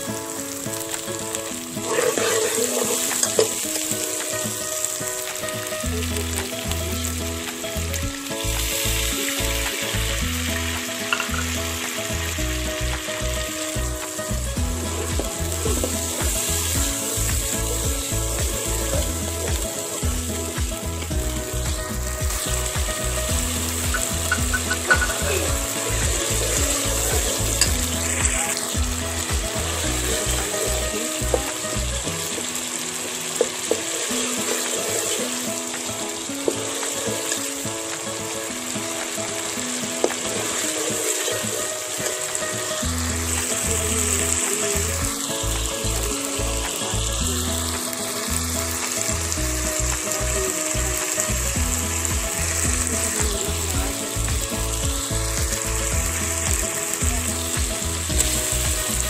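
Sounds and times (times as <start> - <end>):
oil sizzling in a pan: 0.0 - 59.0
background music with low beat: 4.0 - 32.3, 44.9 - 59.0.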